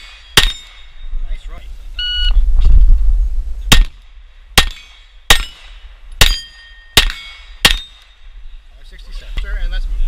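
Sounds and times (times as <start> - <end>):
pistol shots: 0.0 - 0.9, 3.7 - 4.0, 4.6 - 8.2
steel plate ringing: 0.0 - 1.1, 4.6 - 8.3.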